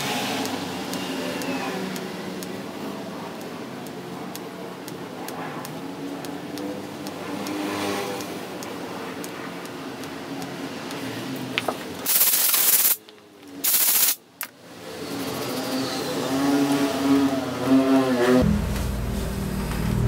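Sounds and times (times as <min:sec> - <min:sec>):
air blow gun hissing: 0:12.0 - 0:13.0, 0:13.6 - 0:14.2.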